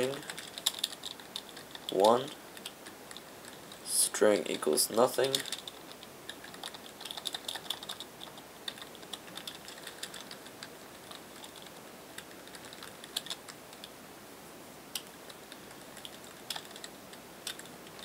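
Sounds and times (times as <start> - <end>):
keyboard keys clicking: 0.0 - 3.8, 5.2 - 13.9, 15.0 - 18.0.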